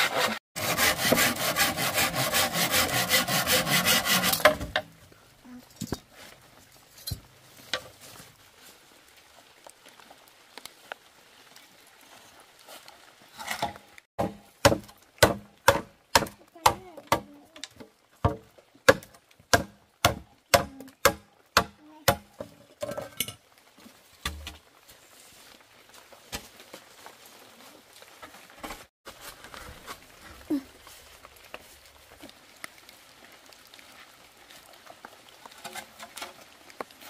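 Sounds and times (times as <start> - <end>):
hand tool striking wood: 0.0 - 4.9, 13.6 - 23.0, 24.2 - 24.6.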